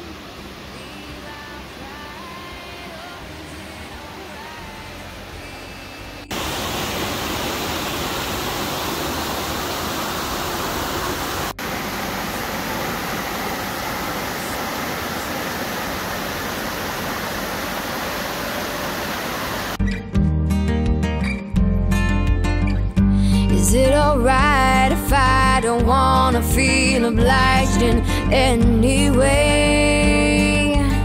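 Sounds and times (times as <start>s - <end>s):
steady rushing noise: 6.3s - 19.8s.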